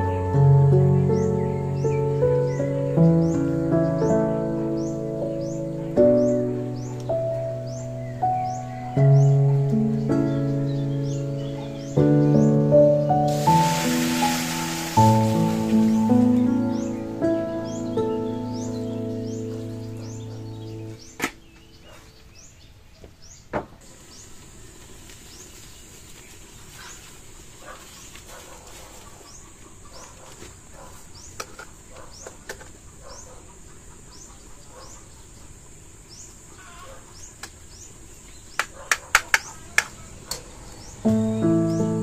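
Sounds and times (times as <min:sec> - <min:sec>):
birds chirping: 0:00.0 - 0:42.0
high insect drone: 0:12.0 - 0:20.8.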